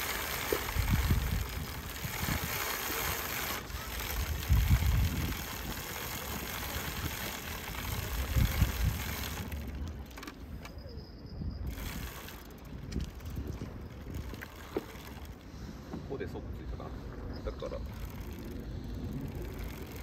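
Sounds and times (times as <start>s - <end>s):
steady rushing hiss: 0.0s - 10.3s
wind buffeting microphone: 0.0s - 20.0s.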